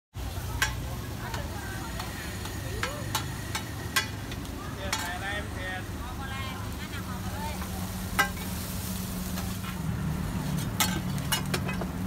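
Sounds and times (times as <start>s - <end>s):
faint chattering voices: 0.2s - 8.6s
food sizzling: 0.2s - 12.0s
metal spatula clinking on griddle: 0.6s - 5.2s, 8.2s - 8.5s, 10.6s - 11.8s.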